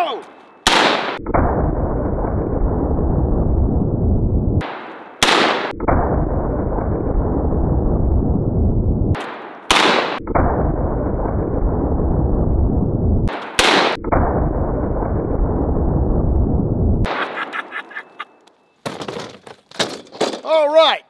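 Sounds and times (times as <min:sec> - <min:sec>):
slowed-down rifle shot rumble: 0:00.7 - 0:17.1.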